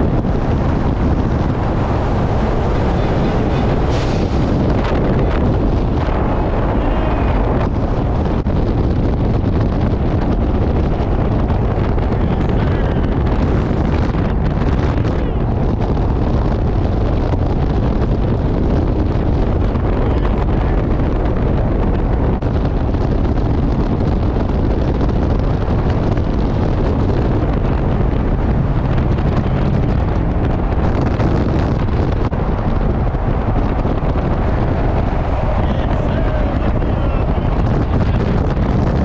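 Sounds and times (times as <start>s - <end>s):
road and tyre noise: 0.0s - 39.0s
wind rushing over microphone: 0.0s - 39.0s.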